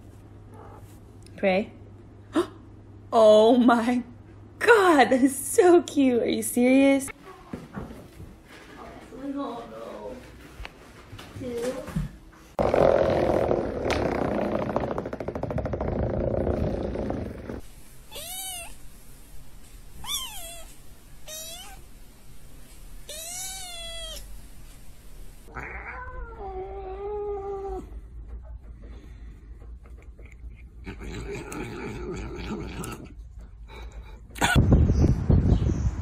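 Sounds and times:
cat meowing: 18.1s - 18.8s, 20.0s - 21.8s, 23.1s - 24.3s
kitten meowing: 18.1s - 18.8s, 20.0s - 20.7s, 21.3s - 21.8s, 23.1s - 24.3s.

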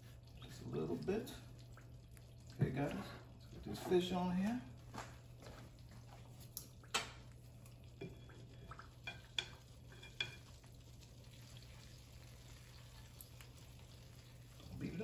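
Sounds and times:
metal tongs clinking on skillet: 9.1s - 10.5s.

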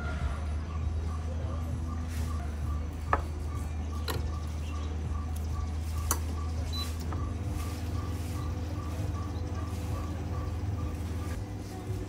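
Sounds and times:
espresso machine humming: 4.1s - 12.0s.

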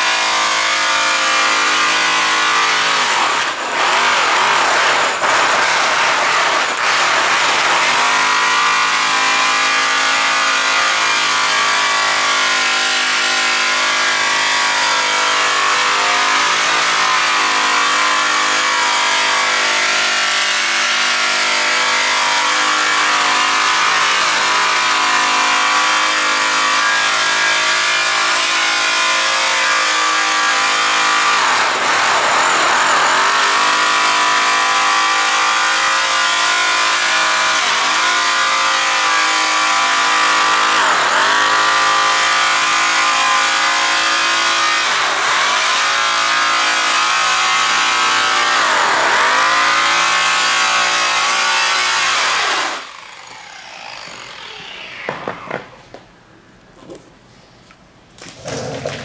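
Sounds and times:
electric buffer motor whine: 52.0s - 55.9s.

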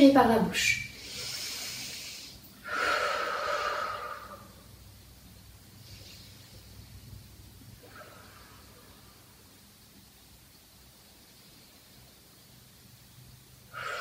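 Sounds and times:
woman breathing deeply: 0.9s - 4.8s, 5.7s - 9.6s, 13.6s - 14.0s.

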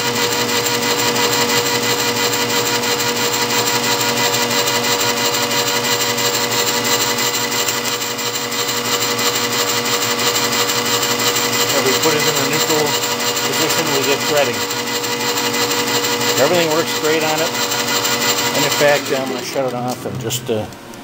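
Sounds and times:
lathe motor and gearing whir: 0.0s - 21.0s.

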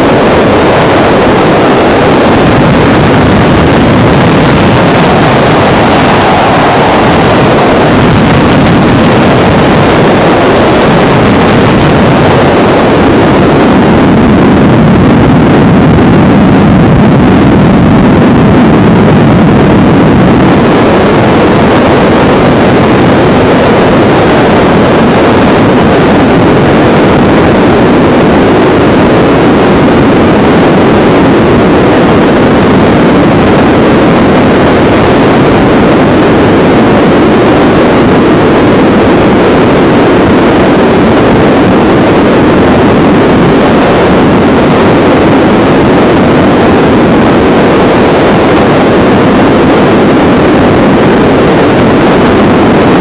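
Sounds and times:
helicopter engine and rotor noise: 0.0s - 18.2s.

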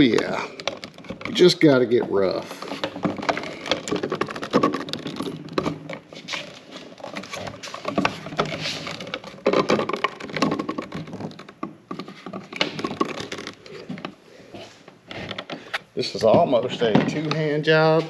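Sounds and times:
plastic cover clicking and scraping: 0.0s - 18.0s.

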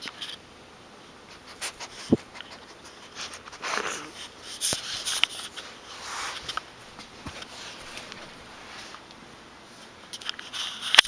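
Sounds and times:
dog sniffing and breathing noisily: 1.2s - 9.0s.

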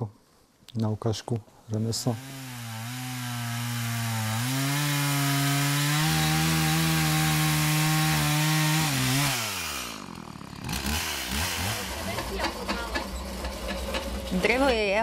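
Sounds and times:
chainsaw cutting log: 2.1s - 12.9s.

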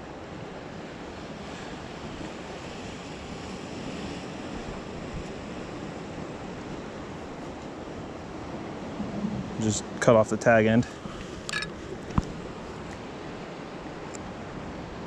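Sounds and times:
ocean surf washing against rocks: 0.0s - 15.0s
wind on microphone: 1.3s - 13.0s.

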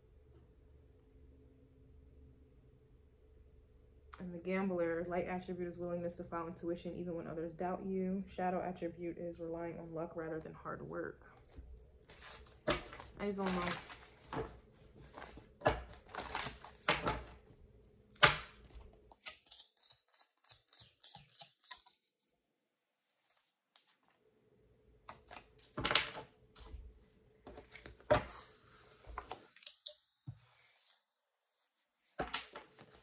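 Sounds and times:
cards being shuffled: 12.1s - 17.4s, 18.2s - 22.1s, 25.1s - 26.8s, 27.5s - 28.3s, 32.0s - 33.0s.

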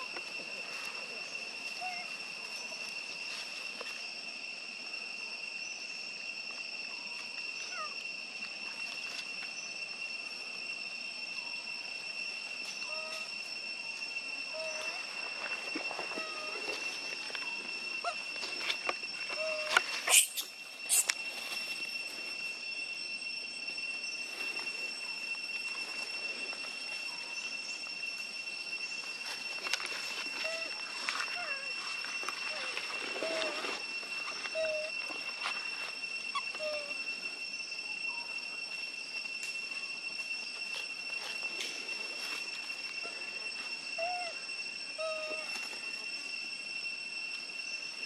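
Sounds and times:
steady high drone: 0.0s - 48.0s
monkeys giving squeaky calls: 19.4s - 21.1s.

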